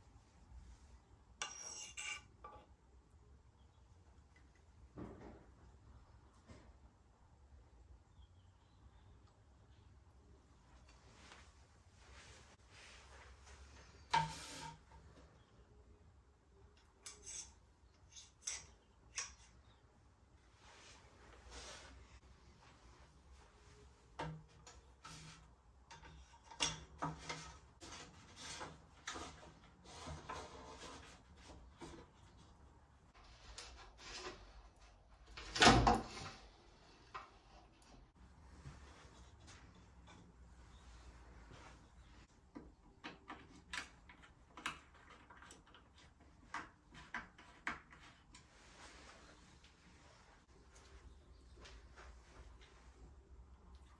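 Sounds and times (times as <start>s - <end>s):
metal tube knocking and scraping: 1.4s - 2.8s, 13.9s - 15.2s, 16.8s - 19.8s, 24.2s - 32.4s.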